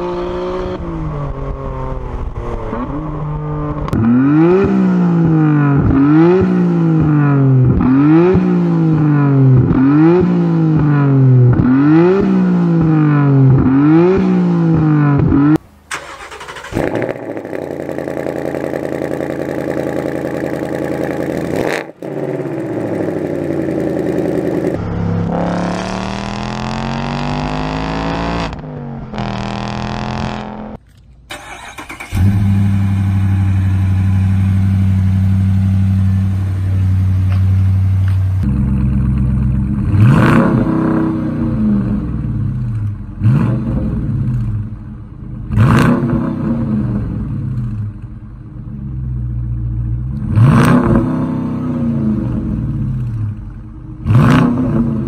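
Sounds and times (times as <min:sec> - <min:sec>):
car engine revving: 0:00.0 - 0:55.0
engine revving with rising pitch: 0:09.8 - 0:30.8, 0:39.7 - 0:42.3, 0:45.5 - 0:47.6, 0:50.2 - 0:53.1, 0:54.0 - 0:55.0
car engine idling: 0:15.6 - 0:24.8, 0:30.8 - 0:40.0.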